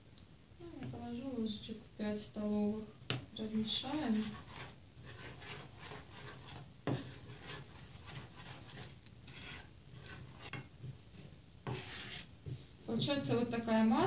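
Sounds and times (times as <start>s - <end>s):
fingers stirring dough in a bowl: 3.6s - 13.2s.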